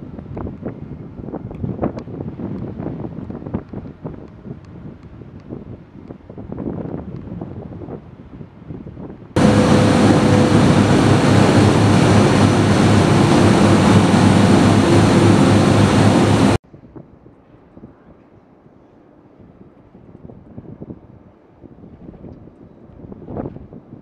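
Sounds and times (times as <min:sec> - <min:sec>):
faint wind: 0:00.0 - 0:24.0
heavy machinery running: 0:09.4 - 0:16.6.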